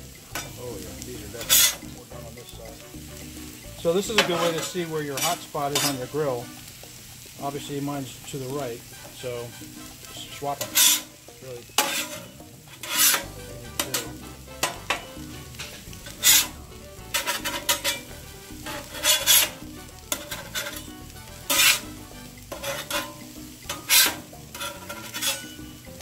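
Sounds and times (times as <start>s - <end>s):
frying sizzle: 0.0s - 26.0s
metal spatula scraping griddle: 1.2s - 1.8s, 4.0s - 6.4s, 9.8s - 26.0s.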